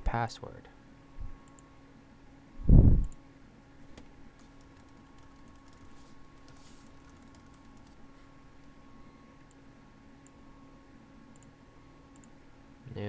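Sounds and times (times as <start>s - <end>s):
computer keyboard keystrokes: 3.9s - 8.0s.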